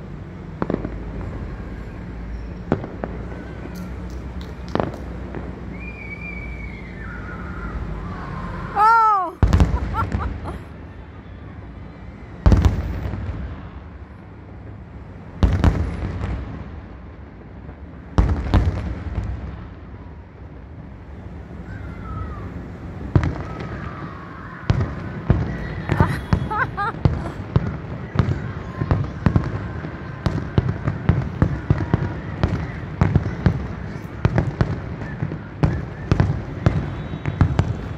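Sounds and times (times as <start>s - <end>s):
fireworks bangs: 0.5s - 10.8s, 12.4s - 14.0s, 15.3s - 16.9s, 17.6s - 20.1s, 21.6s - 37.9s
firework shells booming: 9.4s - 10.6s.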